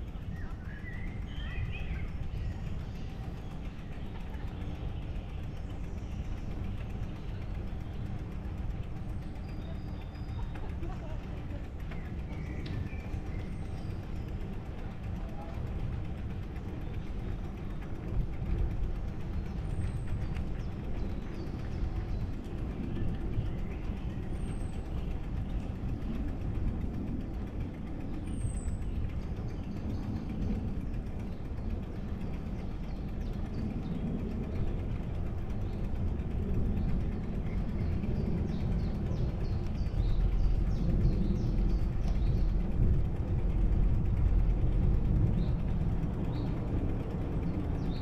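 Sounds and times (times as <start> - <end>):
bicycle rolling noise: 0.0 - 48.0
wind on microphone: 17.8 - 48.0.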